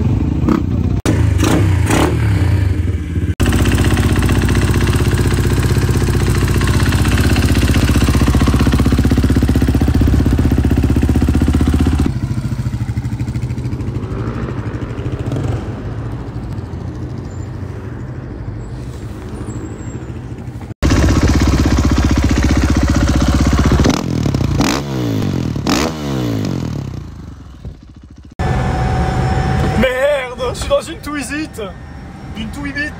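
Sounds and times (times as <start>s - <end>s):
motorcycle engine revving: 0.0s - 17.6s, 19.4s - 30.0s.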